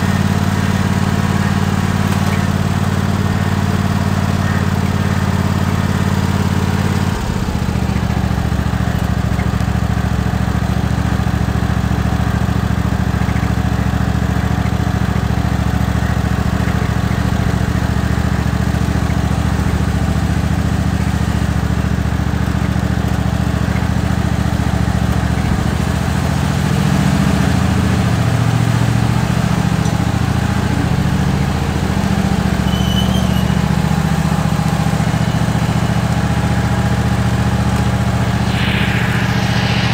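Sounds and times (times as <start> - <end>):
tractor engine running: 0.0 - 24.3.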